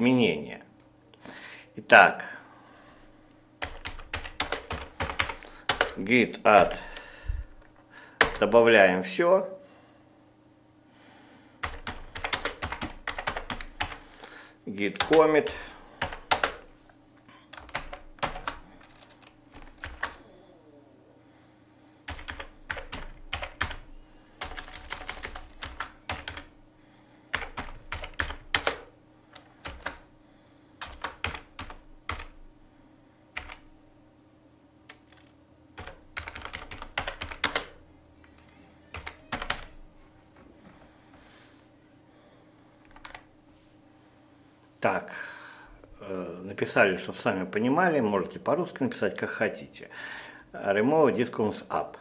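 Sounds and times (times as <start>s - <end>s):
computer keyboard typing: 3.6s - 6.0s, 8.2s - 8.5s, 11.6s - 14.0s, 14.9s - 16.7s, 17.5s - 20.2s, 22.1s - 26.5s, 27.3s - 30.1s, 30.8s - 32.4s, 33.4s - 33.7s, 34.9s - 39.8s, 42.9s - 43.3s.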